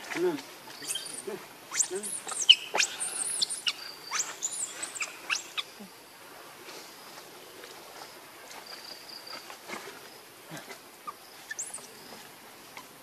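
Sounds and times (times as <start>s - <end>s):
high insect trill: 0.0s - 7.2s, 7.9s - 13.0s
faint steady hiss: 0.0s - 13.0s
high chirp: 0.8s - 5.8s.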